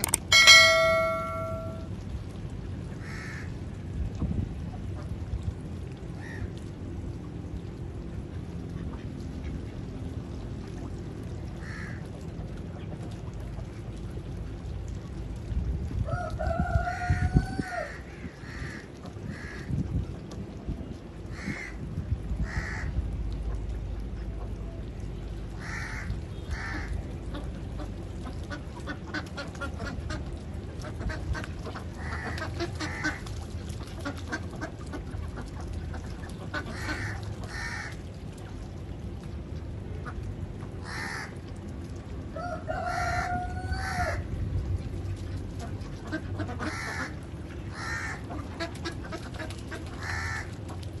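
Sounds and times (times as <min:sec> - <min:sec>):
low steady rumble: 0:00.0 - 0:51.0
ducks quacking: 0:46.0 - 0:50.6.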